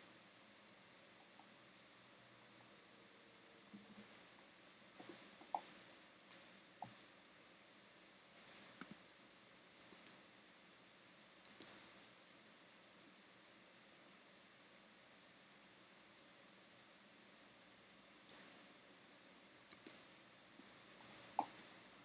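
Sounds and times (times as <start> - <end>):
mouse and keyboard clicking: 3.8 - 5.8, 8.3 - 9.0, 9.8 - 10.2, 11.1 - 11.8, 19.7 - 20.0, 20.6 - 21.6.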